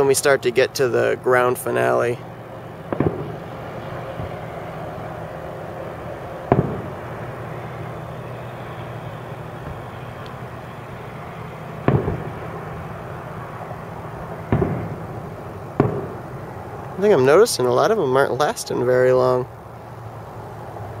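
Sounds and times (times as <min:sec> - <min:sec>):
firework shells booming: 0:02.7 - 0:04.4, 0:06.4 - 0:07.9, 0:08.6 - 0:10.5, 0:11.8 - 0:13.0, 0:14.2 - 0:17.9.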